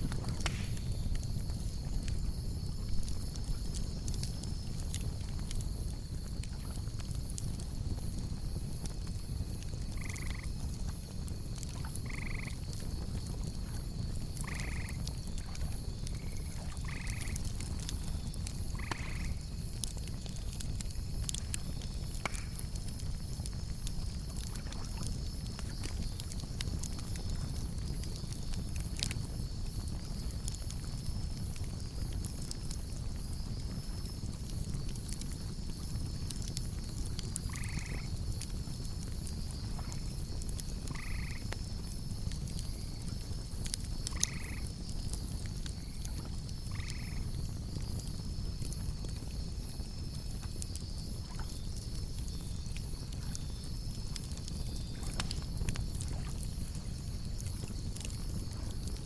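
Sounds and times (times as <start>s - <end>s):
campfire crackling and popping: 0.0s - 59.0s
grasshoppers chirring: 9.3s - 10.5s, 11.4s - 17.4s, 18.1s - 19.7s, 37.4s - 38.2s, 40.9s - 41.8s, 44.0s - 48.0s
frogs croaking: 9.7s - 10.7s, 11.6s - 13.1s, 14.3s - 20.6s, 35.0s - 38.5s, 39.5s - 41.8s, 43.9s - 48.0s.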